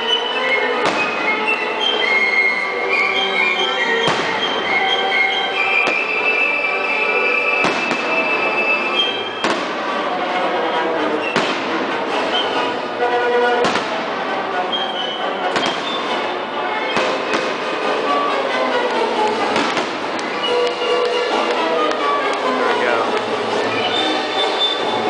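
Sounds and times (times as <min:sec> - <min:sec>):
music with string-like tones: 0:00.0 - 0:25.0
fireworks booming: 0:00.7 - 0:02.0, 0:04.0 - 0:06.2, 0:07.4 - 0:10.2, 0:11.2 - 0:12.7, 0:13.5 - 0:18.1, 0:19.3 - 0:21.3.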